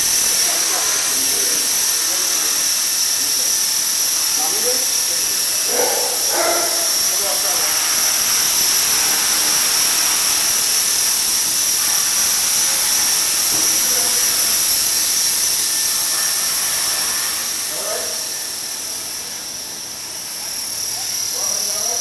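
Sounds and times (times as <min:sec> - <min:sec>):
rc helicopter whine: 0:00.0 - 0:22.0.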